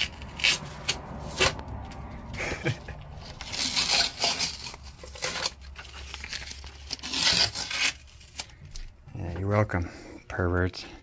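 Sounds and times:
masking tape being peeled off: 0:00.0 - 0:01.7, 0:03.2 - 0:08.9.

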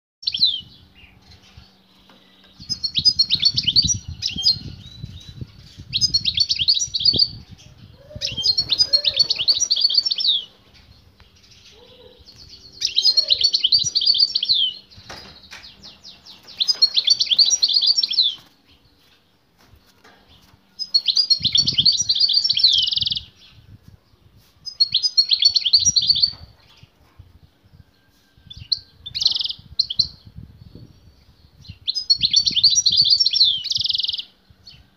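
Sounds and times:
goldfinch twittering song: 0:00.2 - 0:07.6, 0:08.2 - 0:19.1, 0:20.4 - 0:23.6, 0:28.5 - 0:34.8.

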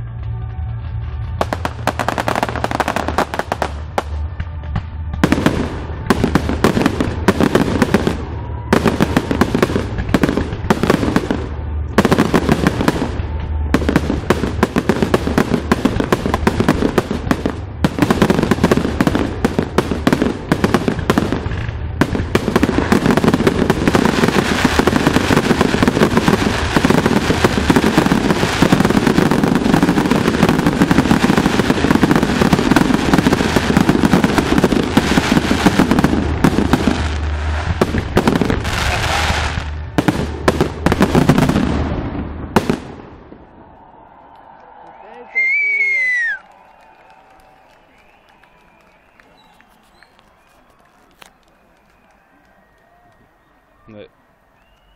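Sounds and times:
music: 0:00.0 - 0:41.2
fireworks bursting: 0:00.0 - 0:44.8.

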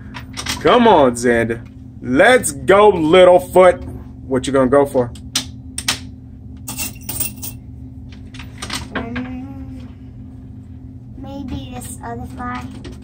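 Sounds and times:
machine low hum: 0:00.0 - 0:13.0
coins jingling: 0:06.7 - 0:07.6.

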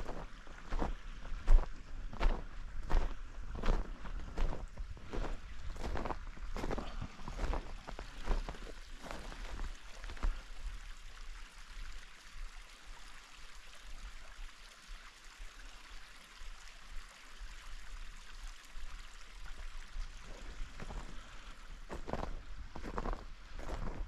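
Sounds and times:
boots crunching in snow: 0:00.0 - 0:10.2, 0:21.9 - 0:24.0.

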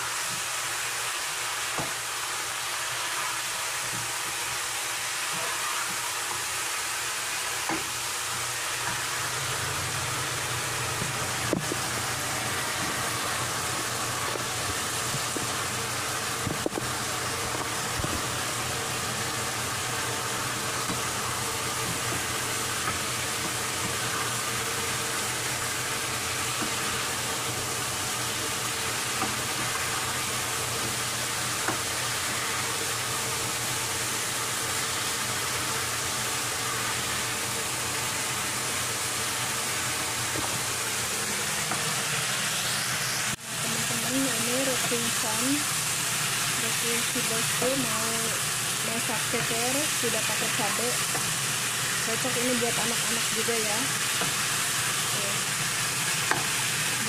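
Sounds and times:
food sizzling in a frying pan: 0:00.0 - 0:57.0
gas burner hiss and hum: 0:00.0 - 0:57.0.

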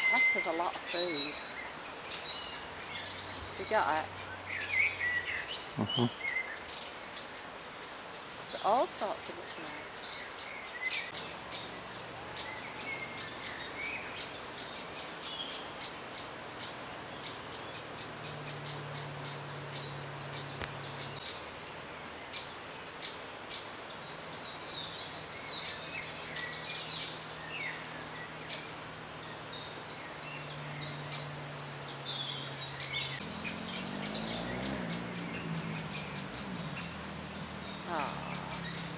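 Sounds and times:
birdsong: 0:00.0 - 0:38.9
woodpecker nestlings calling: 0:10.8 - 0:21.5, 0:28.4 - 0:38.9.

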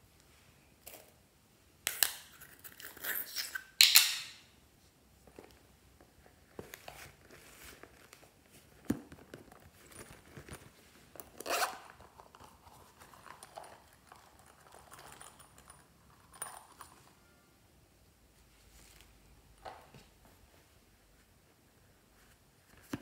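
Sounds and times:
soft rustles and light clicks: 0:04.8 - 0:17.2, 0:18.3 - 0:23.0
zipper pulled open: 0:11.2 - 0:12.4.

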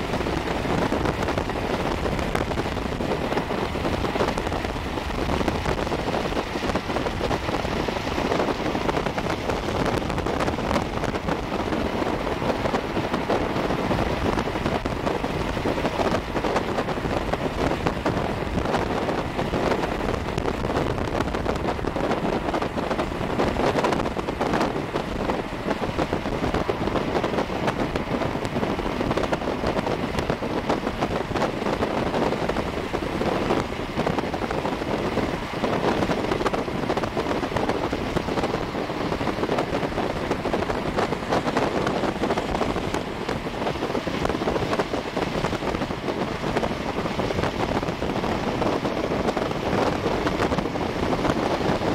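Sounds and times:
road and wind noise inside car: 0:00.0 - 0:51.9.

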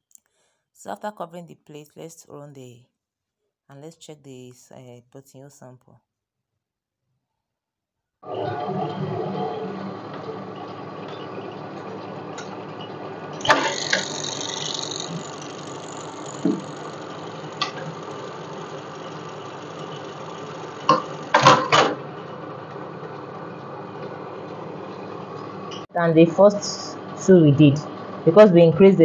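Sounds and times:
sewing machine running: 0:13.4 - 0:21.7.

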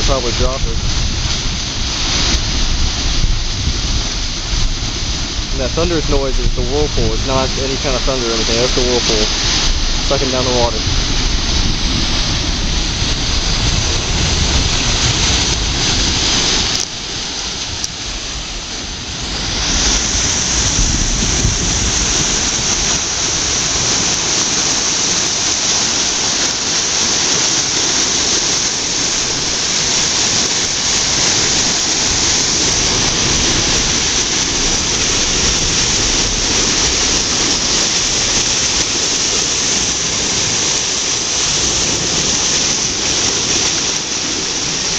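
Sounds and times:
whirlpool water rushing: 0:00.0 - 0:44.9.

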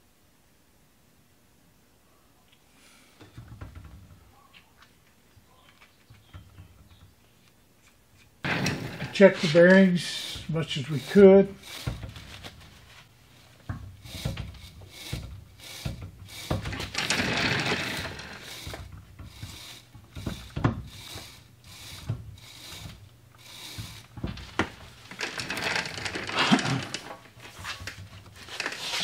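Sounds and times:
grinder arbor clicking and knocking: 0:06.1 - 0:07.2, 0:08.4 - 0:12.3, 0:13.6 - 0:29.0.

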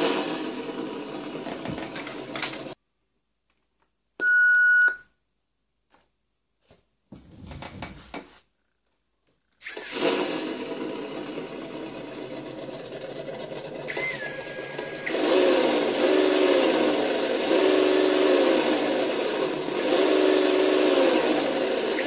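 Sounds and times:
electronic beep: 0:04.2 - 0:05.0
simulated engine sound from speaker: 0:10.4 - 0:22.0.

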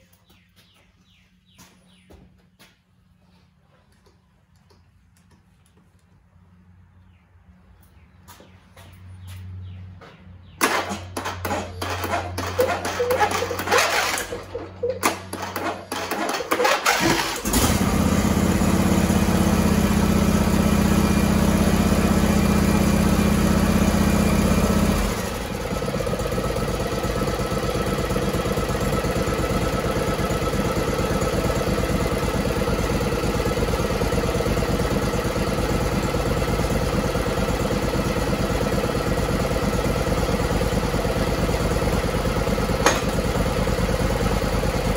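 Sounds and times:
engine running and idling: 0:10.4 - 0:44.9
electric starter cranking engine: 0:10.6 - 0:44.9.

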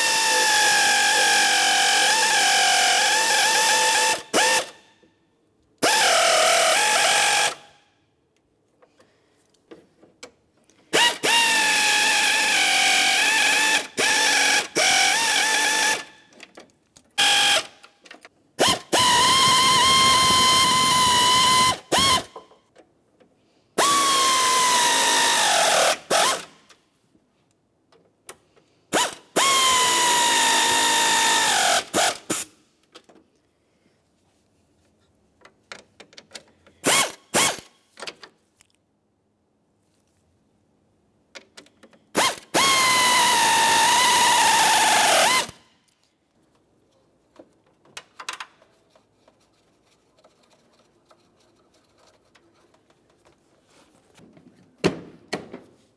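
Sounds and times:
power driver whining: 0:42.2 - 0:45.6.

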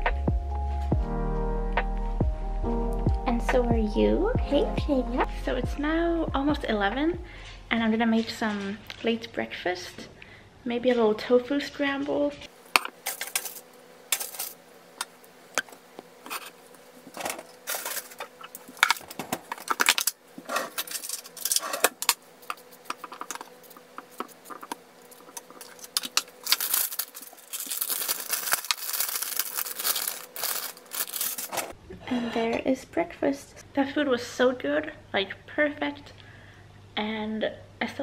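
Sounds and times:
faint steady hum: 0:02.3 - 0:38.0
plastic bag rustling: 0:17.1 - 0:31.8.

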